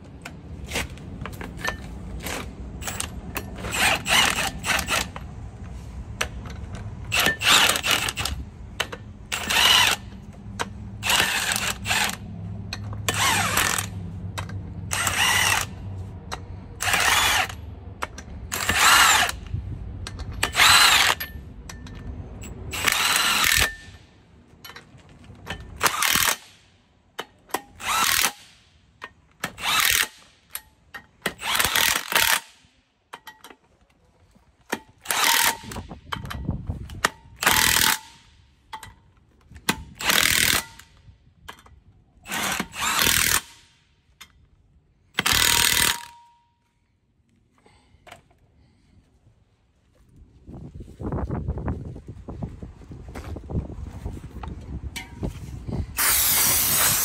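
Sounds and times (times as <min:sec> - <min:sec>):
impact wrench bursts: 0:01.6 - 0:05.2, 0:07.1 - 0:19.5, 0:20.1 - 0:21.4, 0:22.4 - 0:24.1, 0:25.5 - 0:28.7, 0:29.4 - 0:32.7, 0:34.8 - 0:36.2, 0:37.3 - 0:38.3, 0:39.7 - 0:41.0, 0:42.2 - 0:43.9, 0:45.1 - 0:46.4, 0:55.9 - 0:57.0.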